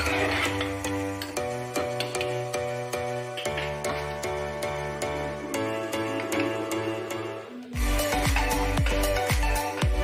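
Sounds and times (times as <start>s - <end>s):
gentle instrumental music: 0.0s - 10.0s
music with heavy bass beat: 7.8s - 10.0s.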